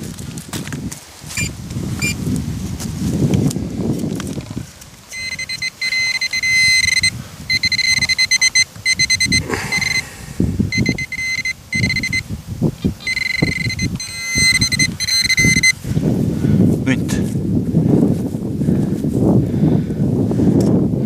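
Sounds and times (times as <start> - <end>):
pinpointer high alert tone: 5.1 - 10.1, 10.7 - 12.3, 12.9 - 15.8.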